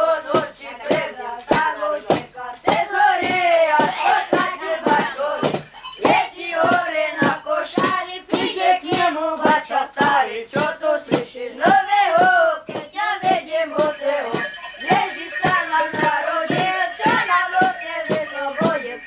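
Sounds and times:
boys singing a carol together: 0.0s - 19.0s.

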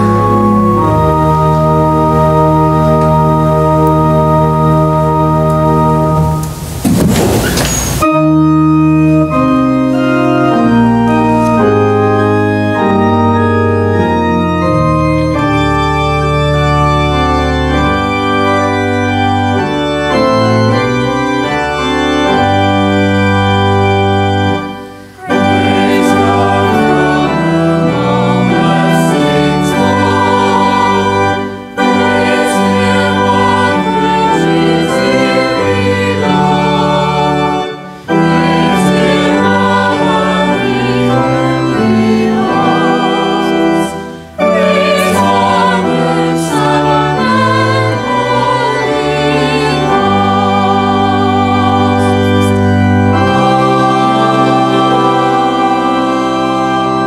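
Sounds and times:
organ playing slow chords: 0.0s - 6.8s, 8.0s - 57.0s.

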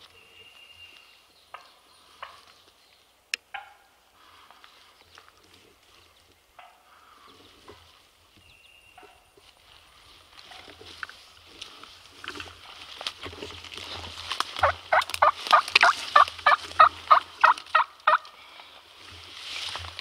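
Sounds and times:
soft rustles and clicks: 9.4s - 16.8s
turkey yelping: 14.6s - 18.2s.

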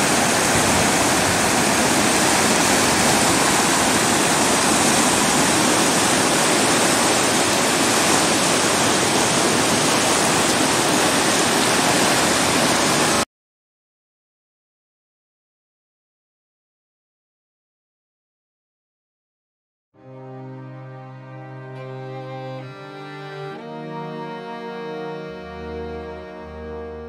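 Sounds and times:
river rapids rushing over rocks: 0.0s - 13.2s.

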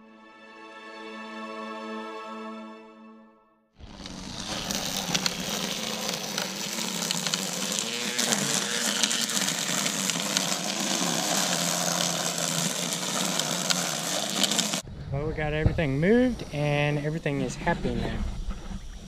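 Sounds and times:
string trimmer cutting grass: 3.8s - 14.8s.

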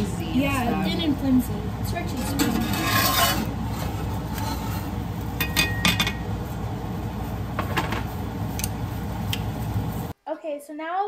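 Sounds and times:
spatulas clinking on frying pans: 5.4s - 6.3s.

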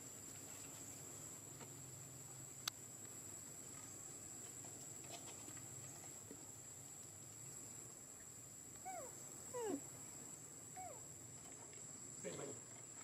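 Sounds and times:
monkey calling: 8.8s - 9.8s, 10.8s - 11.0s.

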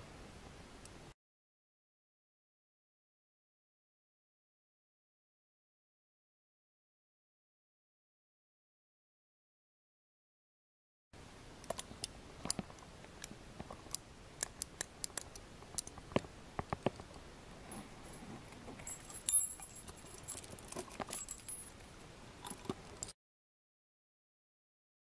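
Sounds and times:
thin high metallic ring: 18.8s - 21.8s
metallic clinks: 18.8s - 23.1s.

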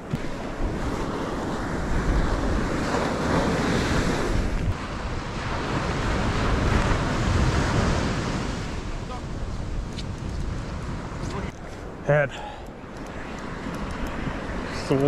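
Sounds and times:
surf washing onto beach: 0.0s - 15.0s
wind buffeting microphone: 0.0s - 15.0s.

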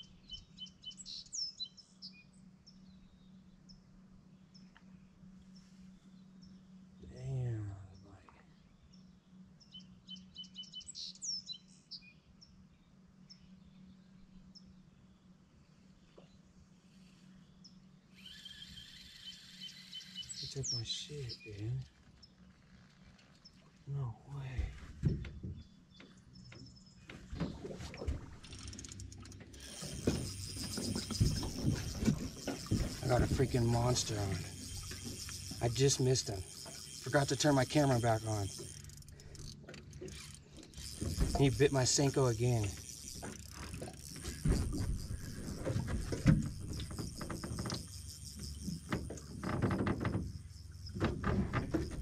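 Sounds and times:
fishing reel ticking: 18.1s - 21.0s, 28.4s - 52.0s
low steady rumble: 21.6s - 52.0s
knocks in aluminum boat: 48.7s - 52.0s.

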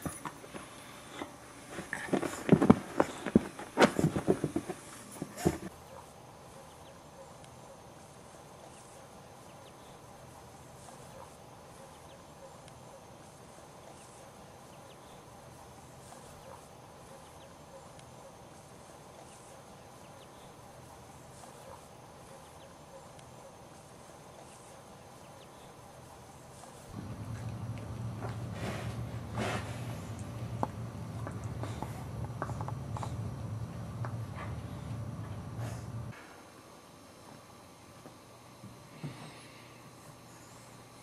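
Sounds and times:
constant low drone: 13.4s - 36.3s
low rumbling: 27.0s - 36.1s.

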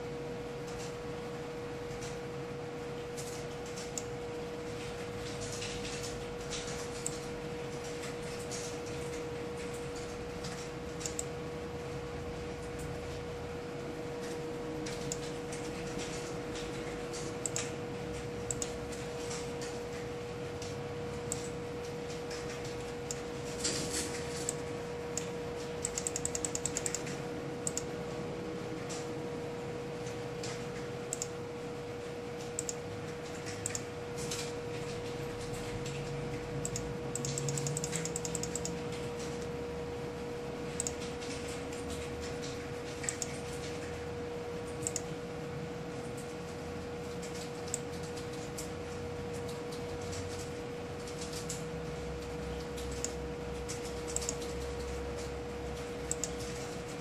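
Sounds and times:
steady electrical hum: 0.0s - 57.0s
computer mouse clicks: 3.2s - 4.1s, 4.7s - 11.4s, 14.2s - 20.0s, 20.6s - 24.6s, 25.2s - 27.9s, 30.0s - 31.4s, 32.4s - 39.5s, 40.8s - 44.0s, 44.7s - 45.1s, 47.2s - 48.7s, 49.3s - 57.0s.

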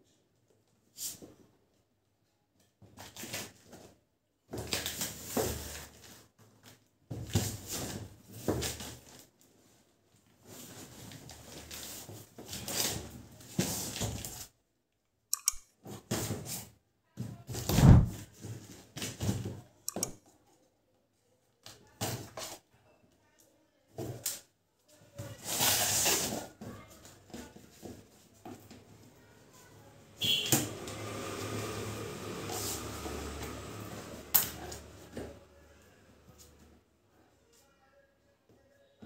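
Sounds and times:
sharp clicks: 15.3s - 15.7s, 19.9s - 20.2s
cardboard box scraping on floor: 17.6s - 18.8s, 25.4s - 26.5s, 31.2s - 33.8s
box heavy thump: 17.7s - 18.2s.

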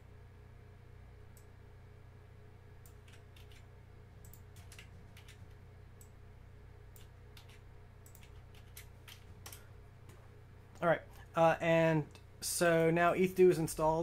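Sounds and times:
steady low hum: 0.0s - 14.0s
keyboard and mouse clicks: 2.8s - 6.1s, 7.0s - 9.7s.

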